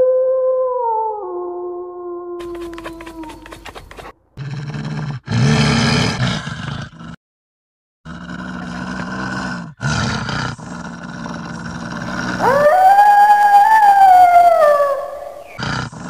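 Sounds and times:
wolf growling: 0:02.4 - 0:07.2, 0:08.1 - 0:16.0.

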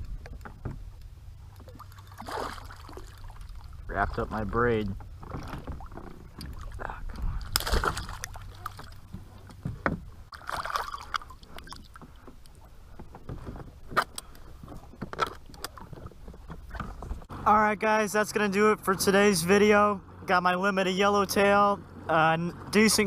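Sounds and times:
water splashing against kayak: 0:00.0 - 0:17.4.

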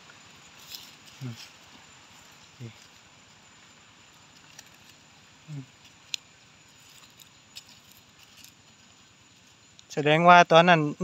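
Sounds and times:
small sharp clicks and crackles: 0:04.3 - 0:05.1, 0:05.8 - 0:08.6.

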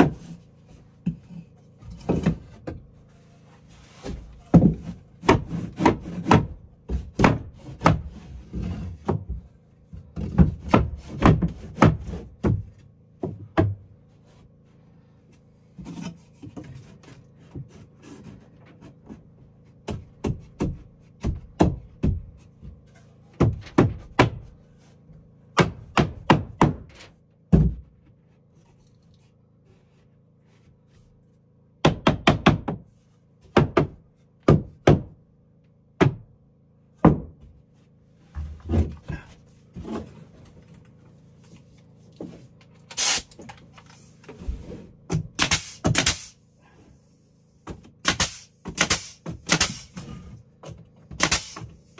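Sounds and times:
thuds and knocks on wood: 0:00.0 - 0:00.4, 0:01.0 - 0:02.9, 0:04.0 - 0:14.0, 0:18.6 - 0:24.6, 0:25.6 - 0:28.2, 0:31.8 - 0:35.2, 0:36.0 - 0:36.3, 0:37.0 - 0:37.6, 0:38.3 - 0:40.2, 0:44.3 - 0:46.2.

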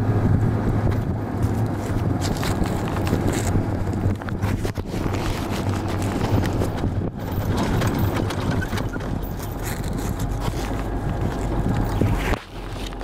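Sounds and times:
vehicle engine running: 0:00.0 - 0:13.0
wind and road noise: 0:00.0 - 0:13.0.

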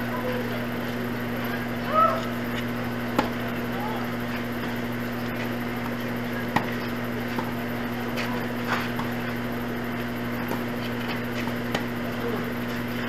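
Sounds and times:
steady low hum: 0:00.0 - 0:13.0
tennis ball struck by rackets: 0:03.1 - 0:03.5, 0:05.8 - 0:09.4, 0:10.4 - 0:12.1.

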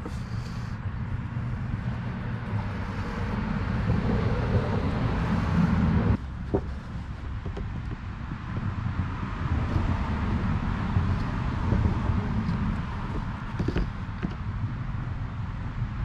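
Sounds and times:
low outdoor background rumble: 0:00.0 - 0:16.0.

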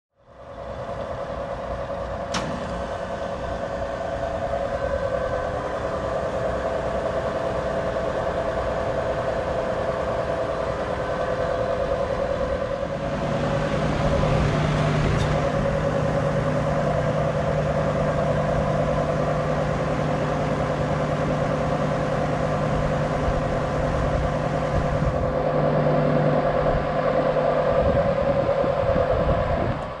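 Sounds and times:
steady whine of outdoor unit: 0:00.1 - 0:30.0
air conditioner fan rush: 0:00.2 - 0:30.0
compressor hum: 0:00.2 - 0:30.0
sharp click: 0:02.3 - 0:02.8.

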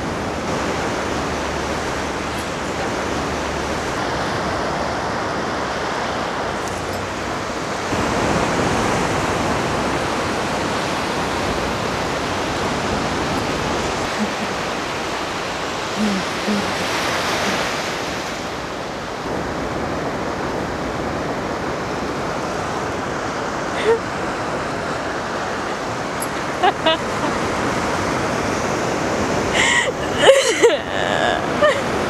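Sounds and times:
surf washing onto beach: 0:00.0 - 0:32.0.

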